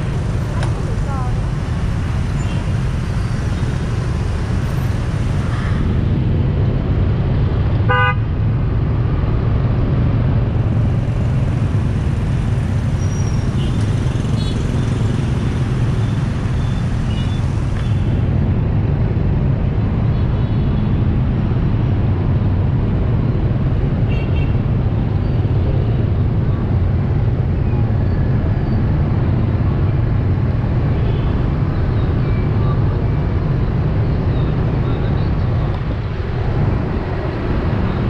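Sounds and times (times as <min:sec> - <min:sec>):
city traffic engine rumble: 0:00.0 - 0:38.0
vehicle horn honk: 0:07.9 - 0:08.2.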